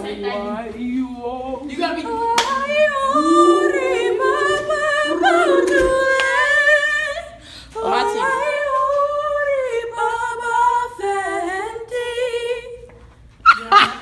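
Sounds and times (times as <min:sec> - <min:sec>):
women singing a cappella: 0:00.0 - 0:13.0.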